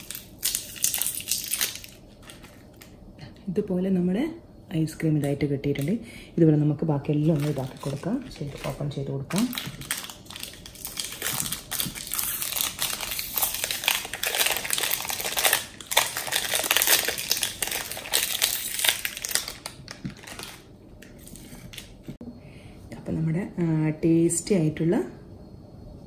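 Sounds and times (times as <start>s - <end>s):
plastic wrapper crinkling and tearing: 0.0s - 3.0s, 7.2s - 22.0s.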